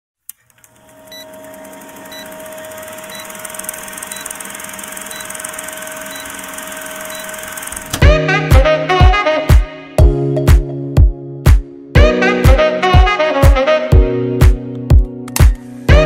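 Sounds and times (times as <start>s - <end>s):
steady hum: 0.6s - 8.0s
music with heavy beat: 8.0s - 16.0s.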